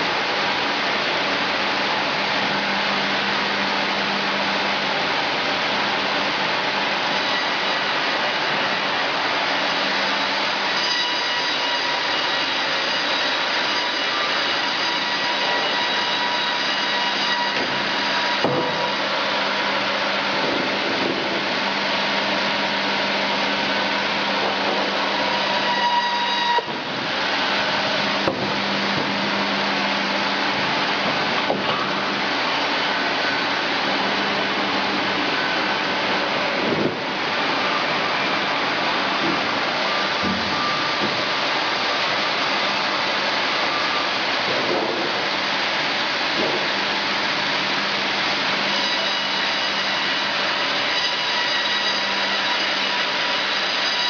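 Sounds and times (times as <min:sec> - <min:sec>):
woodworking machinery whirring: 0:00.0 - 0:54.0
sharp knocks: 0:17.6 - 0:19.0, 0:28.2 - 0:29.1.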